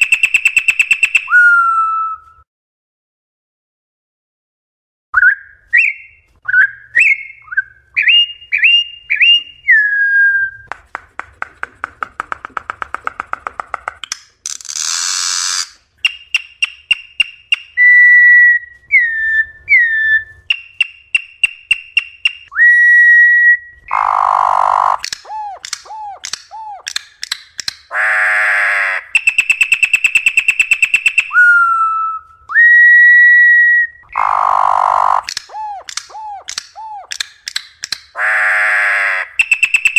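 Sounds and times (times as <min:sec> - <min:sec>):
bird whistling song: 0:00.0 - 0:02.4, 0:05.2 - 0:10.7, 0:14.8 - 0:28.0, 0:28.9 - 0:38.2, 0:39.2 - 0:39.9
harsh buzzy bird calls: 0:14.5 - 0:17.9, 0:23.8 - 0:32.0, 0:34.0 - 0:37.2, 0:38.1 - 0:39.9.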